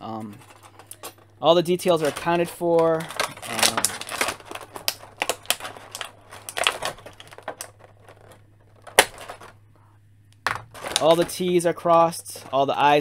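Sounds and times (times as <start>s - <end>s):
plastic blister tray crinkling: 0.4s - 9.6s, 10.4s - 13.0s
plastic snapping: 2.0s - 9.6s.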